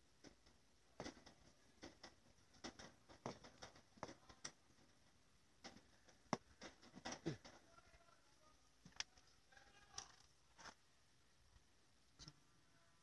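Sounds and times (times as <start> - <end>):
faint clicks and taps: 0.2 - 7.8.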